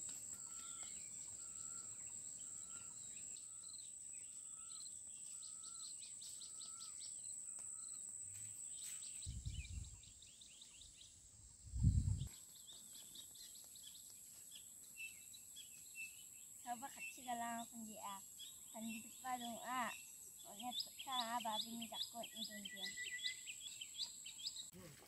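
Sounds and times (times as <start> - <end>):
birds calling: 0.0 - 8.0, 12.1 - 24.8
low rumbles on microphone: 9.2 - 10.0, 11.6 - 12.3
high bird chirps: 18.4 - 24.7.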